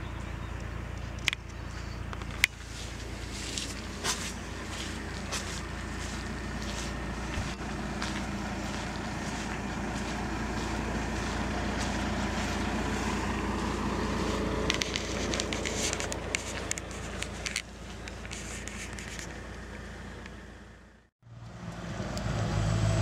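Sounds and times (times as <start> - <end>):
road and tyre noise: 0.0 - 23.0
truck engine hum: 0.0 - 23.0
sharp clicks and rattles: 0.6 - 5.3, 14.6 - 20.4.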